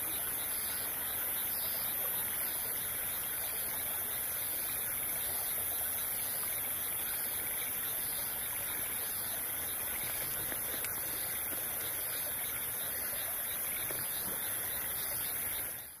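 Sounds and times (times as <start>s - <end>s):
stream flowing: 0.0s - 16.0s.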